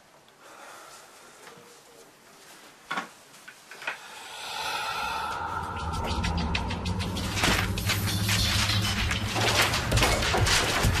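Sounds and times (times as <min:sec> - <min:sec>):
eerie steady tones: 0:04.0 - 0:10.9.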